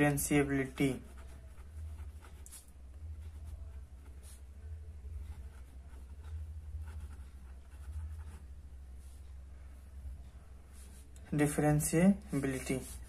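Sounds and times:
steady low hum: 0:00.0 - 0:13.0
pen scratching on paper: 0:00.3 - 0:08.6, 0:12.4 - 0:13.0.

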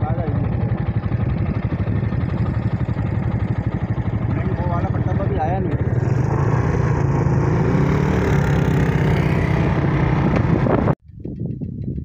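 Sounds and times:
motorcycle engine running: 0:00.0 - 0:12.0
wind noise on microphone: 0:07.6 - 0:12.0.

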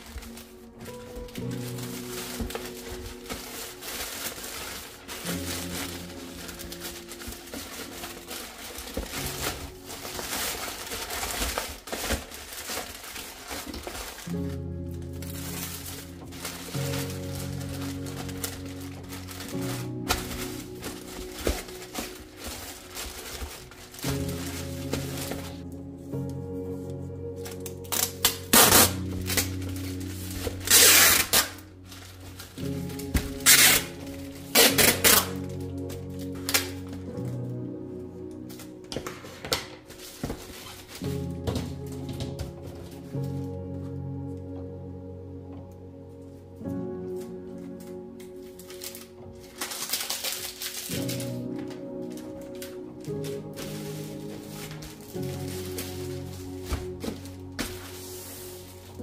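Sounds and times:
packing tape pulled off roll: 0:00.0 - 0:44.8, 0:46.6 - 0:59.0
background music: 0:00.0 - 0:59.0
plastic mailer bag crinkling: 0:00.0 - 0:59.0
tape pressed onto plastic bag: 0:30.4 - 0:31.6, 0:32.6 - 0:37.3.

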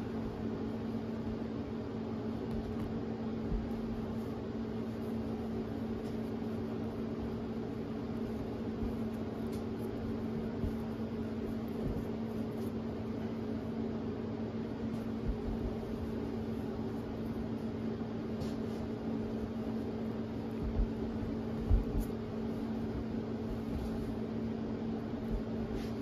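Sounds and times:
mechanical hum with hiss: 0:00.0 - 0:26.0
faint soft bumps: 0:20.6 - 0:22.3.

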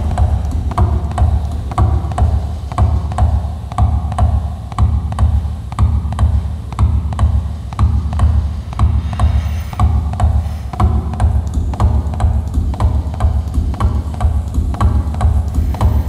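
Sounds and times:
low pulsing: 0:07.8 - 0:14.0.

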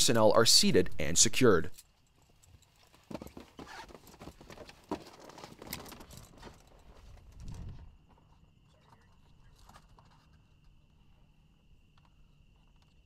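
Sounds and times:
gear knocks and rustles: 0:01.8 - 0:11.0
boots knocking: 0:02.9 - 0:06.6.

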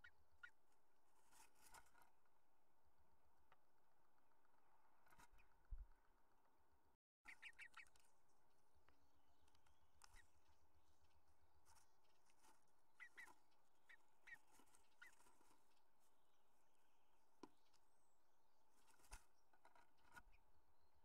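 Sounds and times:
bird chirps: 0:07.2 - 0:08.0, 0:13.0 - 0:15.2.

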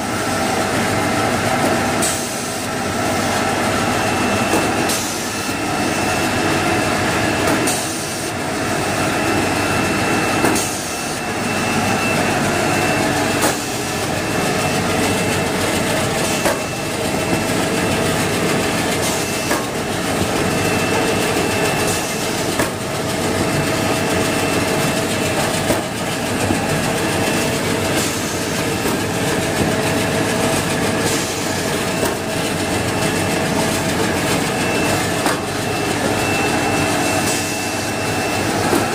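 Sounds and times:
cutting machine running with whine: 0:00.0 - 0:38.9.

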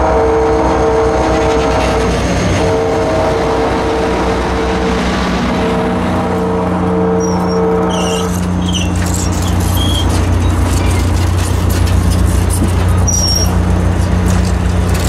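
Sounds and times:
train wheels rumbling on rail: 0:00.0 - 0:15.0
wheel flanges squealing: 0:07.2 - 0:15.0.

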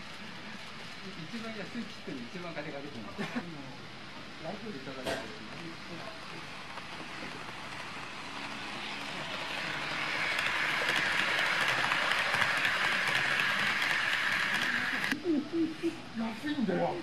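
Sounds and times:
model train wheels on rails: 0:04.5 - 0:15.2.

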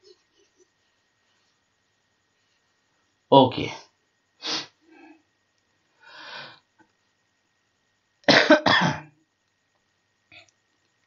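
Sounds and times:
person coughing: 0:08.3 - 0:09.1.

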